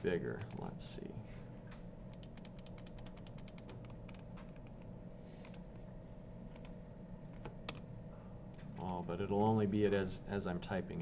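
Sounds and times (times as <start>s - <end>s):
faint steady hum: 0.0s - 11.0s
mouse scroll wheel ticking: 2.1s - 4.8s.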